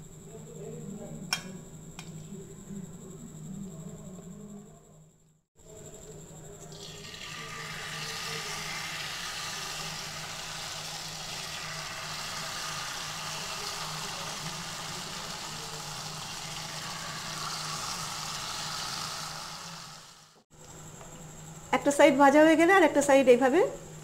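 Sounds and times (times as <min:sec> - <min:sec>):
batter sizzling in hot oil: 0:06.7 - 0:20.5.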